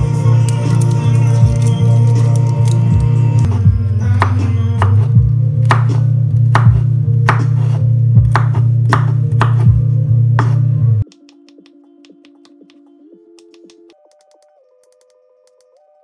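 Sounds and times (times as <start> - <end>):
rap music with heavy bass: 0.0 - 14.0
knife chopping on cutting board: 5.6 - 9.8, 10.4 - 11.2.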